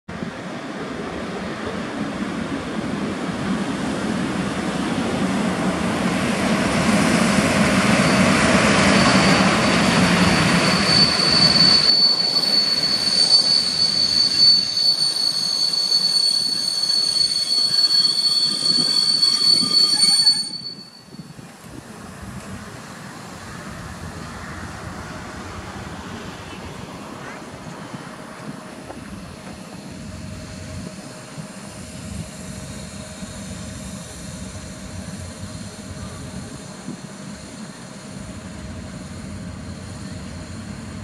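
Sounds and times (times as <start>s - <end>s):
train rumbling past: 0.1s - 41.0s
high brake squeal: 7.0s - 21.5s.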